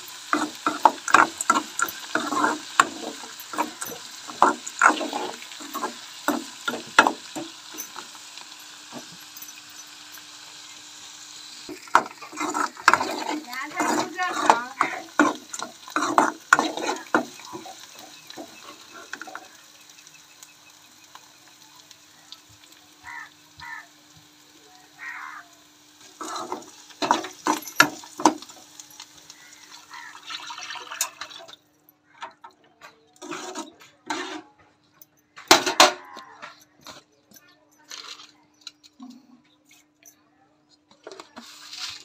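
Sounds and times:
metal spoon scraping a pan: 0.0 - 10.3, 11.7 - 19.6, 26.0 - 30.1, 32.9 - 34.7
light sizzling: 0.0 - 31.7, 33.2 - 40.1, 41.0 - 42.0.

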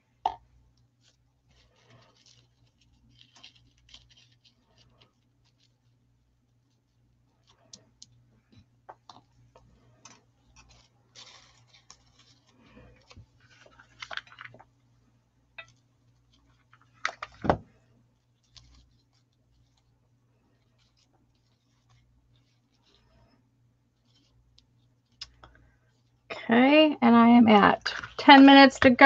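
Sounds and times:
ribbon and paper rustling: 1.0 - 6.0, 10.0 - 14.7, 18.2 - 23.3.

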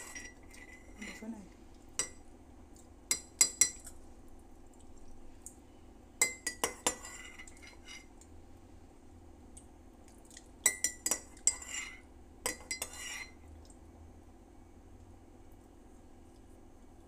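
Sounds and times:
spoon clinking against ceramic mug: 3.1 - 3.8, 6.2 - 7.8, 10.7 - 13.3.

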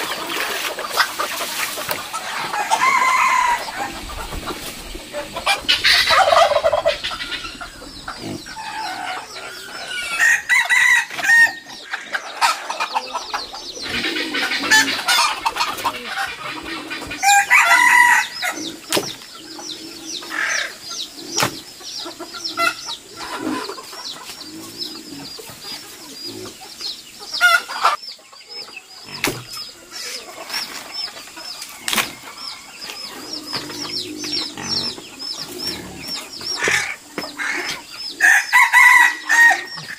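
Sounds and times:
chickens clucking: 0.0 - 39.9
rooster crowing: 2.3 - 4.2, 8.4 - 11.7, 17.2 - 18.6, 38.2 - 39.9.

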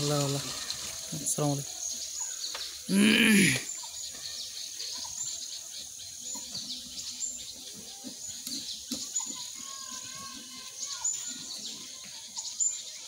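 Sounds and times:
small birds chirping: 0.0 - 13.0
high insect buzz: 2.9 - 3.9.

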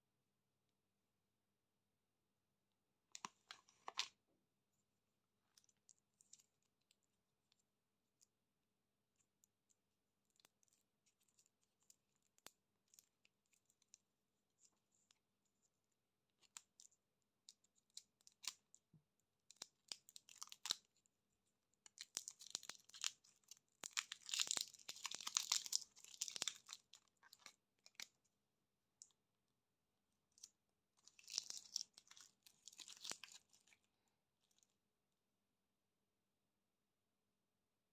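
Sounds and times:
candy wrapper crinkling and tearing: 16.3 - 21.0, 21.8 - 28.2, 30.3 - 34.7.

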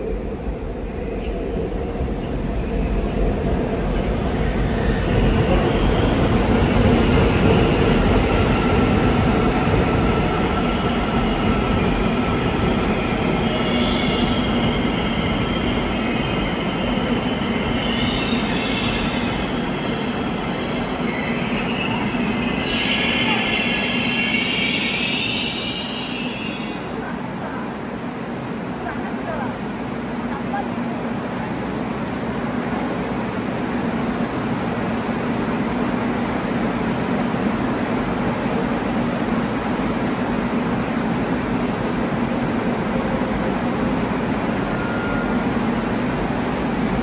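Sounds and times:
train wheels rumbling on rail: 0.0 - 47.0
train brakes squealing: 12.4 - 27.0, 44.2 - 45.9.

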